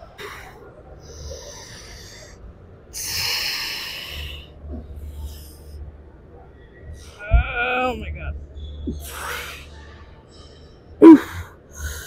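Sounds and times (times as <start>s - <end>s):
woman breathing heavily: 0.1s - 5.9s, 8.9s - 12.0s.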